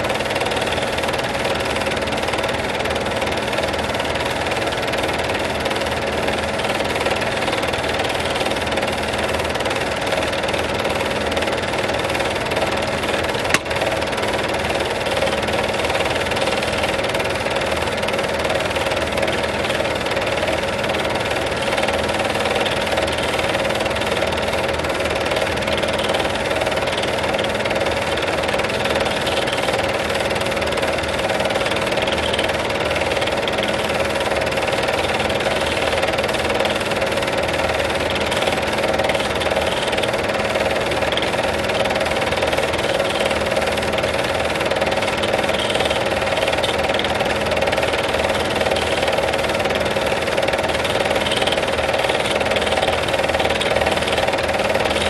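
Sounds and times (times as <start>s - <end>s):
film projector whirring: 0.0s - 55.0s
sharp click: 13.5s - 13.8s.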